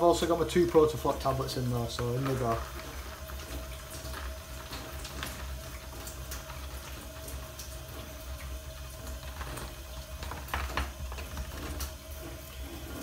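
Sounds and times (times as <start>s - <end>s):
liquid boiling in a kettle: 0.0s - 13.0s
foil bag crinkling: 9.1s - 13.0s.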